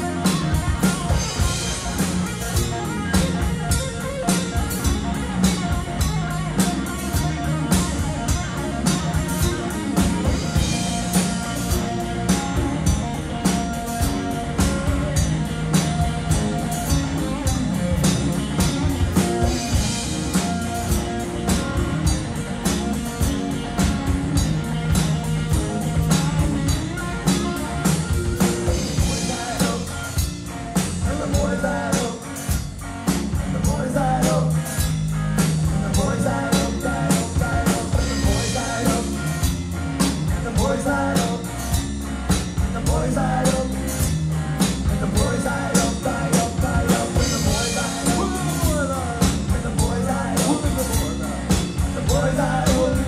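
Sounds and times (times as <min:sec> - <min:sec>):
bass guitar: 0:00.0 - 0:53.0
drum kit: 0:00.0 - 0:53.0
electric guitar: 0:00.0 - 0:53.0
man singing: 0:28.6 - 0:32.6, 0:33.5 - 0:34.8, 0:35.6 - 0:39.5, 0:40.2 - 0:41.7, 0:42.6 - 0:44.2, 0:44.8 - 0:53.0.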